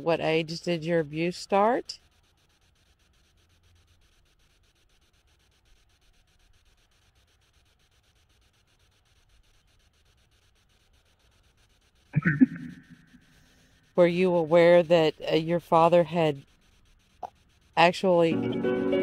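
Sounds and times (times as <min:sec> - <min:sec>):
faint low rumble: 0:12.2 - 0:13.4.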